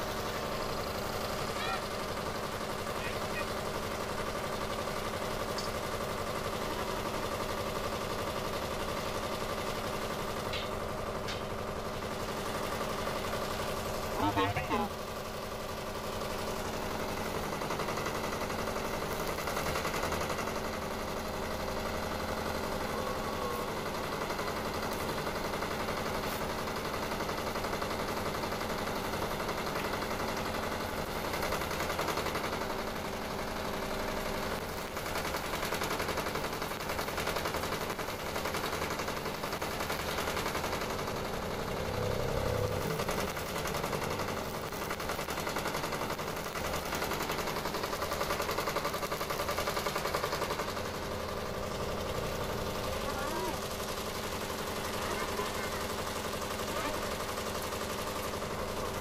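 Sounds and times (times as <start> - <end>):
arc welding crackling: 15.9 - 59.0.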